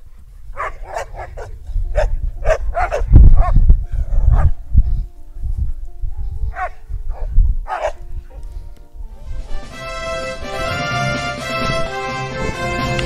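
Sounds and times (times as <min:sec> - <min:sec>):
dogs barking: 0:00.5 - 0:04.7, 0:06.1 - 0:08.6.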